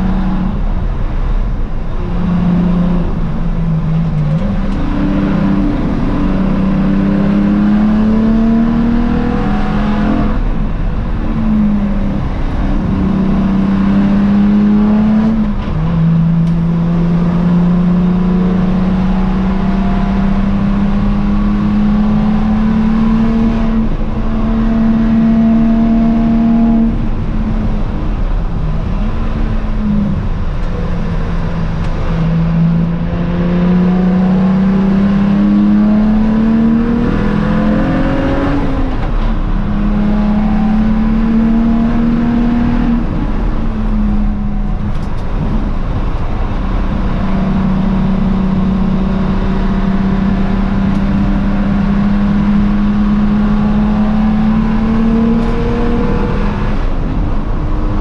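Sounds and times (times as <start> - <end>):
race car engine accelerating: 0.0 - 58.0.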